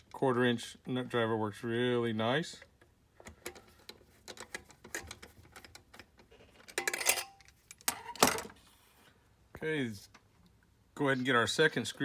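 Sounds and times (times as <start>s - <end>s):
metal clatters: 6.6s - 8.5s.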